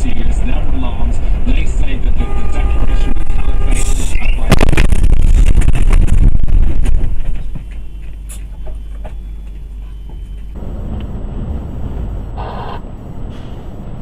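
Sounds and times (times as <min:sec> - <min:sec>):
truck engine and road rumble: 0:00.0 - 0:14.0.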